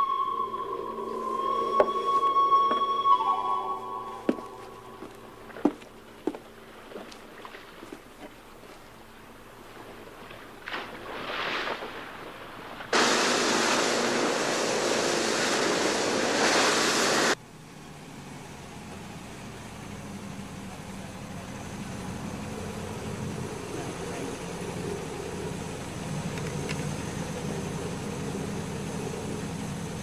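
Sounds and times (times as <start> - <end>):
low engine hum: 0.0 - 11.0, 12.1 - 30.0
loud rushing noise: 13.0 - 17.4.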